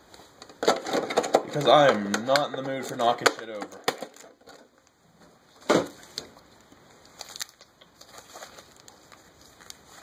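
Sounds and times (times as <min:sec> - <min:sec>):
foil packs crinkling: 0:00.6 - 0:04.9, 0:07.0 - 0:10.0.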